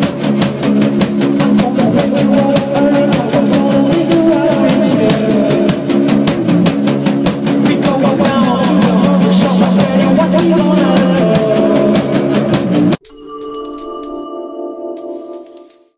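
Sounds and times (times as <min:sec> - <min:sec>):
rock band playing live: 0:00.0 - 0:13.0
electronic station jingle: 0:07.7 - 0:15.8.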